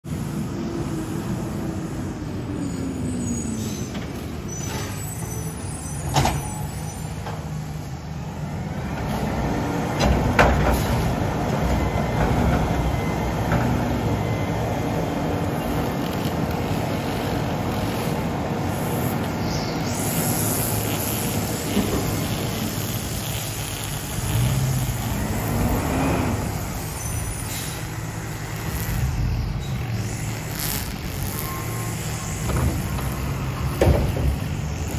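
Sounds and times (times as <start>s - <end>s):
garbage truck diesel engine: 0.0s - 34.9s
air brakes hissing: 1.8s - 7.7s, 10.6s - 11.3s, 26.0s - 29.7s.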